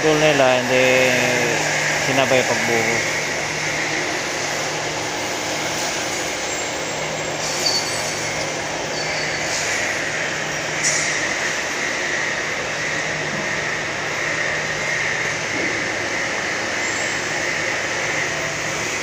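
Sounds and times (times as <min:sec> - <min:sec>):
machinery noise: 0:00.0 - 0:19.0
brief high squeals: 0:06.5 - 0:09.7.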